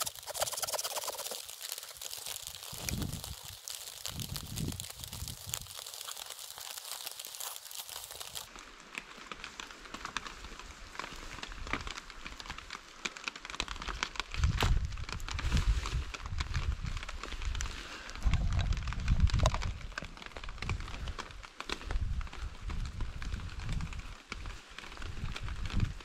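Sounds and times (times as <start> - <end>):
footsteps on forest floor: 0.0 - 8.5
plastic poncho rustling: 0.0 - 8.5.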